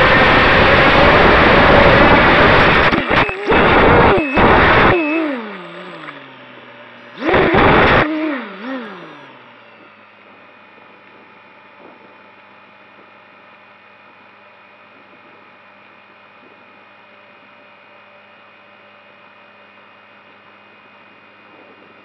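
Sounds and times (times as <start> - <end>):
quadcopter motors and propellers: 0.0 - 22.0
quadcopter crashing into ground: 7.2 - 8.8.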